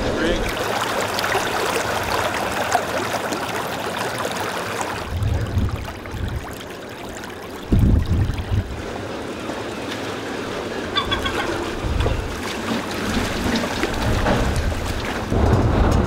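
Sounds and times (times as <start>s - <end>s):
water bubbling and splashing: 0.0s - 16.0s
low rumbling thumps: 5.0s - 6.6s, 7.7s - 8.9s, 13.1s - 16.0s.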